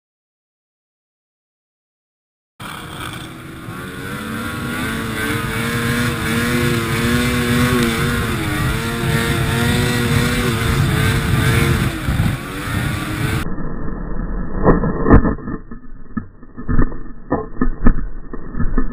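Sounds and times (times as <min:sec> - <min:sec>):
snowmobile engine running hard: 0:02.6 - 0:13.5
wind and track noise: 0:02.6 - 0:18.9.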